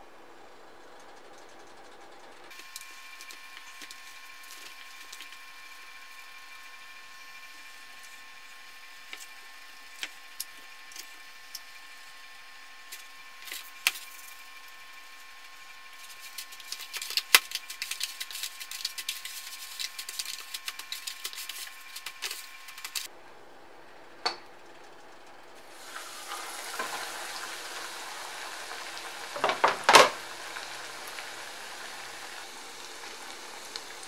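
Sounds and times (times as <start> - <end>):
faint steady whine: 0.0 - 34.0
chicken crackling in breadcrumbs: 2.5 - 6.2, 12.8 - 23.1, 25.8 - 34.0.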